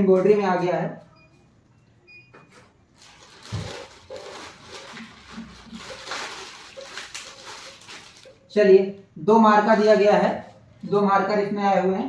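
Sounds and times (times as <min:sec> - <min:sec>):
plastic bag rustling: 0:02.9 - 0:08.5.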